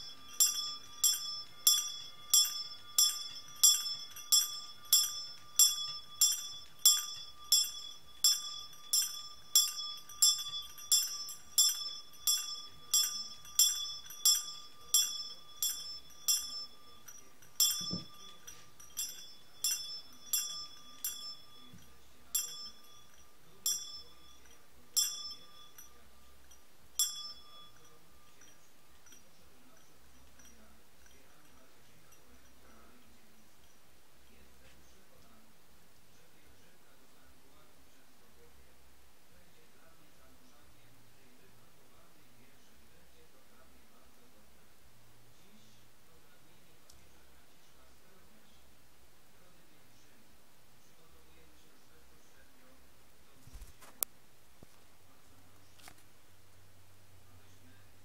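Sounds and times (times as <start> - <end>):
small high-pitched bell ringing: 0.0 - 35.0.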